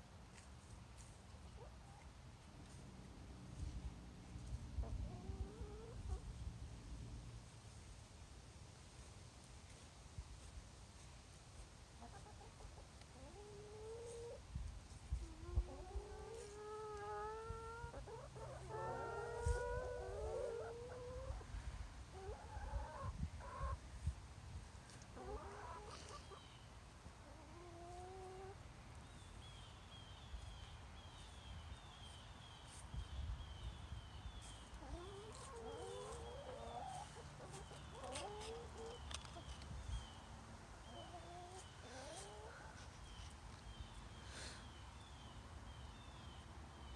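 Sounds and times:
hens clucking: 0:04.8 - 0:06.2, 0:12.0 - 0:14.4, 0:15.2 - 0:21.5, 0:22.1 - 0:23.8, 0:24.9 - 0:26.6, 0:27.2 - 0:28.6, 0:34.4 - 0:39.6, 0:40.8 - 0:43.2.

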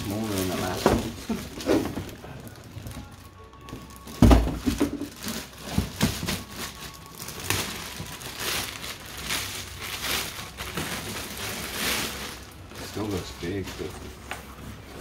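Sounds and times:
plastic wrapping crinkling: 0:00.0 - 0:14.9.

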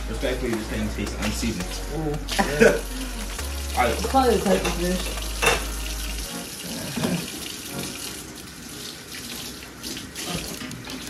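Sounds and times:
faucet running into sink: 0:03.8 - 0:11.0.

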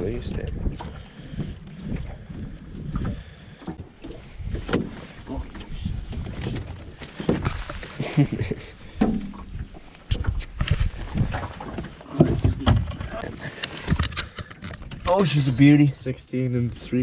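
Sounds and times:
low wind: 0:00.0 - 0:17.0
water noise: 0:00.0 - 0:17.0
net and gear knocking on aluminum hull: 0:08.9 - 0:10.3.

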